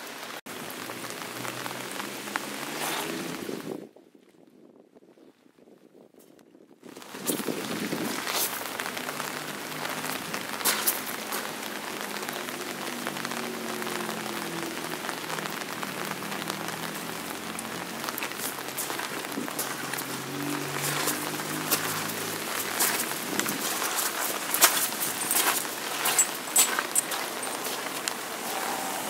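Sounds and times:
raindrops tapping close by: 0:00.0 - 0:03.7, 0:06.9 - 0:29.0
steady rain hiss: 0:00.0 - 0:03.8, 0:06.9 - 0:29.0.

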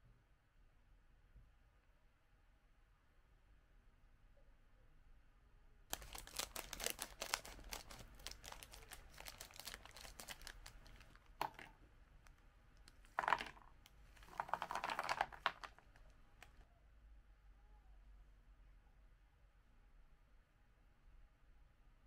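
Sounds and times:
plastic snack bag crinkling: 0:05.9 - 0:11.7, 0:12.9 - 0:13.6, 0:14.2 - 0:16.6
snacks shaken onto a plate: 0:14.2 - 0:16.0.

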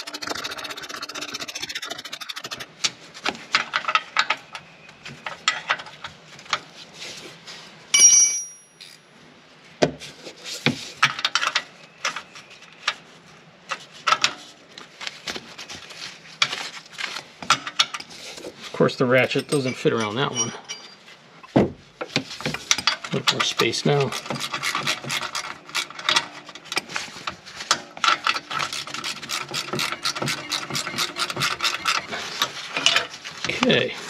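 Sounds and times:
steel tool scraping metal: 0:23.4 - 0:26.0, 0:28.2 - 0:32.5.

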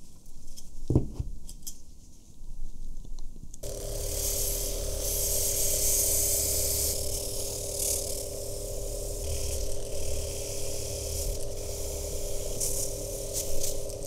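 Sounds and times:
grinding hiss on metal: 0:03.6 - 0:14.0
rotary tool whine: 0:03.6 - 0:14.0.

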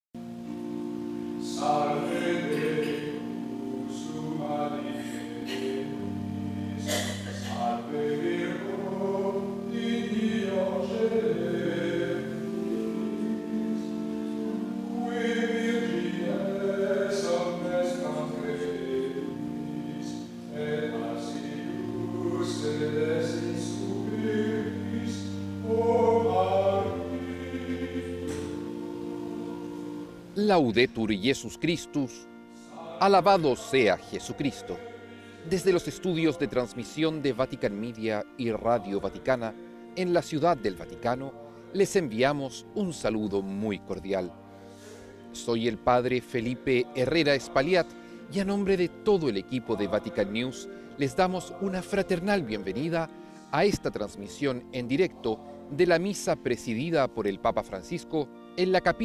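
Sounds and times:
choir singing: 0:01.4 - 0:06.2, 0:06.8 - 0:30.9, 0:32.7 - 0:37.7, 0:46.4 - 0:53.0.

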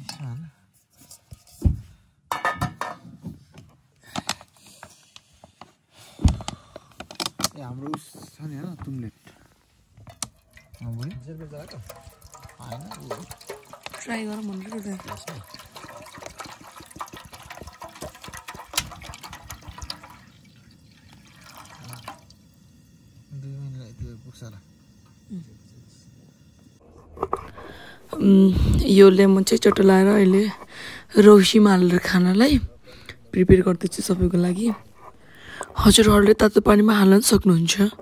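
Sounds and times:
metal pot clattering on stove: 0:02.3 - 0:03.1, 0:10.0 - 0:20.3
water pouring into a metal pot: 0:10.0 - 0:25.2, 0:27.2 - 0:38.0.

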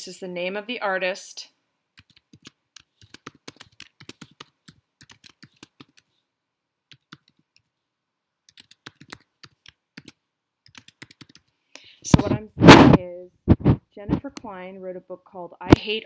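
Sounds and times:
computer keyboard typing: 0:02.0 - 0:06.1, 0:06.9 - 0:07.7, 0:08.4 - 0:11.6.

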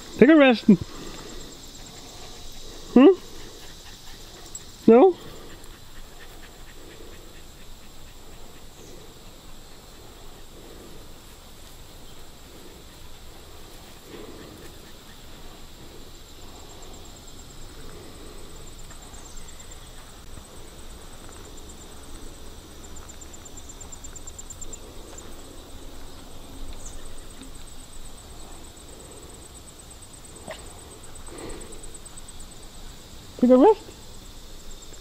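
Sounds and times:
footsteps in woods: 0:17.6 - 0:27.7.

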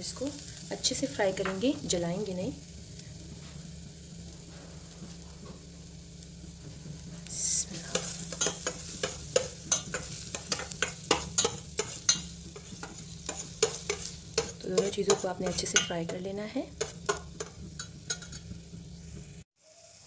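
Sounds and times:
garlic frying in pot: 0:00.0 - 0:20.0
metal spoon scraping pot: 0:07.4 - 0:18.5.

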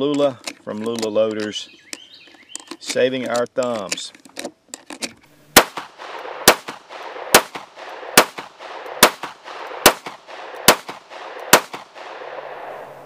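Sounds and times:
pistol shots with echo: 0:05.6 - 0:12.9.

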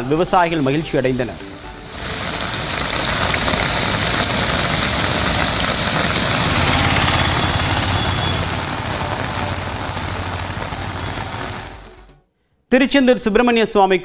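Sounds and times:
heavy rain pouring: 0:00.4 - 0:12.1
vehicle engine humming: 0:01.7 - 0:12.1.

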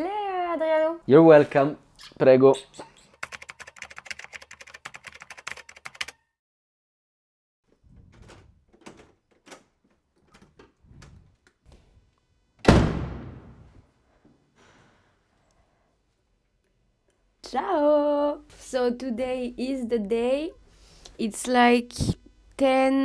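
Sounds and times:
heavy wooden door shutting: 0:07.9 - 0:09.7, 0:12.6 - 0:13.6.

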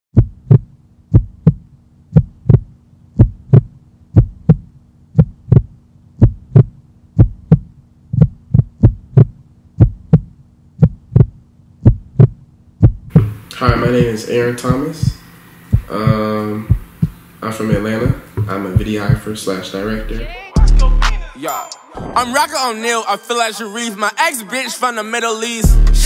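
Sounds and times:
heartbeat double thump: 0:00.1 - 0:19.3
faint steady hum: 0:00.2 - 0:21.0.

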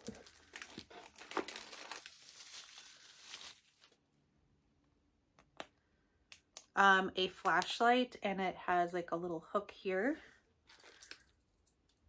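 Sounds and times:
plastic bag crinkling: 0:00.0 - 0:04.0, 0:10.7 - 0:11.4.

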